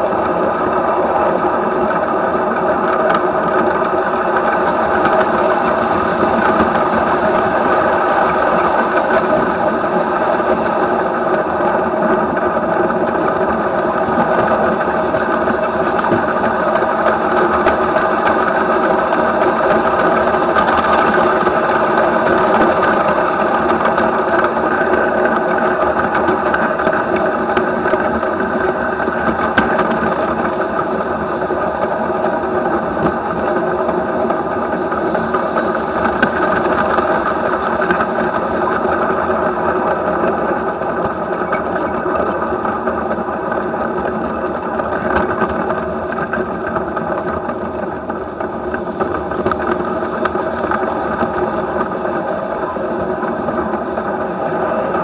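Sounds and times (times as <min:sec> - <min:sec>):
model locomotive wheels clattering: 0:00.0 - 0:55.0.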